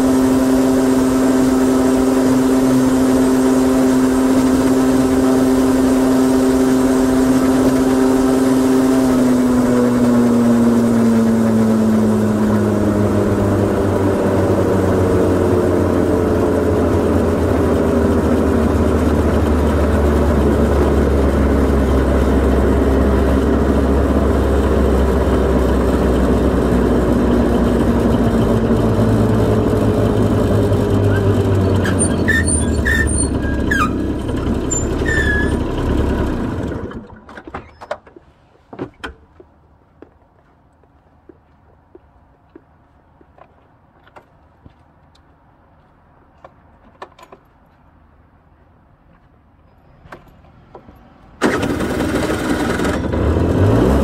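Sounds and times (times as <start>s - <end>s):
scooter engine running: 0.0s - 37.2s, 50.2s - 54.0s.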